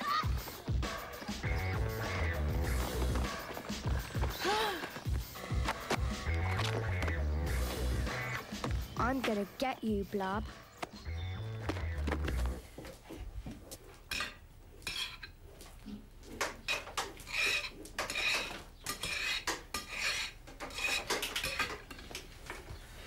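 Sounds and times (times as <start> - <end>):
forks clinking on plates: 14.1 - 15.4, 16.7 - 22.1.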